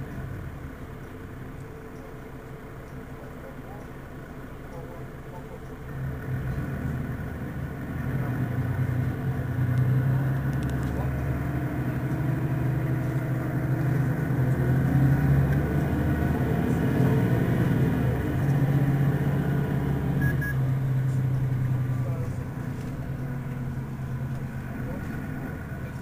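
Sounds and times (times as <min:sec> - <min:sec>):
bus diesel engine idling: 0:00.0 - 0:26.0
short double beep: 0:20.2 - 0:20.6.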